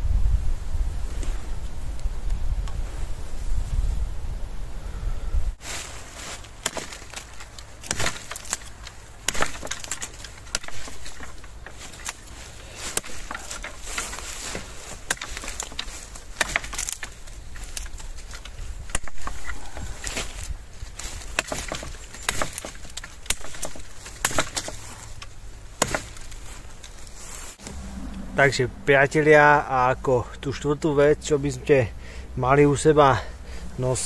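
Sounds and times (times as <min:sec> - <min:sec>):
dry wood cracking and snapping: 0:05.6 - 0:27.8.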